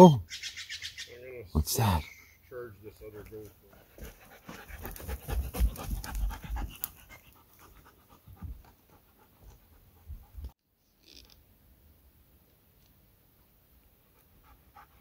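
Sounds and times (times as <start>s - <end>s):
footsteps on forest floor: 3.2s - 7.0s
dog panting: 3.6s - 10.5s, 14.1s - 15.0s.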